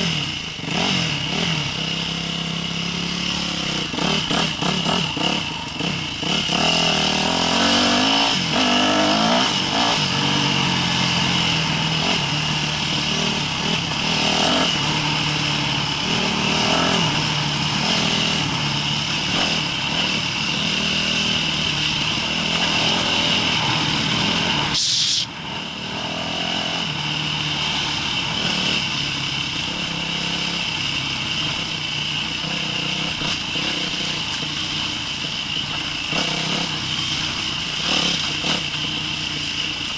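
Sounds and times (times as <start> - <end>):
dirt bike engine revving: 0.0 - 39.9
brief sharp noise: 24.8 - 25.3.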